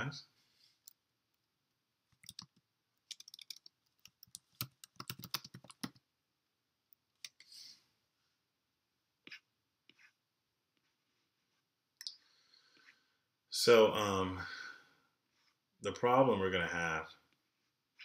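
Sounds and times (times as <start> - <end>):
keyboard typing: 2.1 - 6.0.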